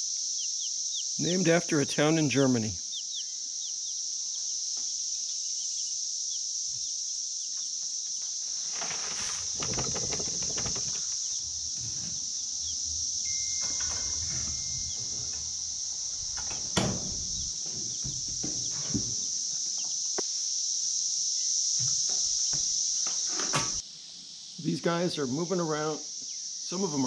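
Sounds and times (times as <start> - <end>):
high-pitched hiss: 0.0 - 27.0
baby chicks peeping: 0.4 - 1.6, 2.8 - 8.3, 9.5 - 13.2
rustling and scraping: 8.0 - 19.9.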